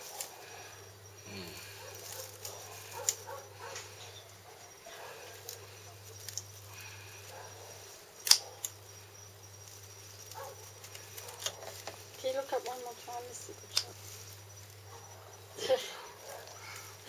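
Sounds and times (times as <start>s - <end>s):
scissors snipping plastic netting: 10.3s - 11.9s, 13.7s - 14.0s.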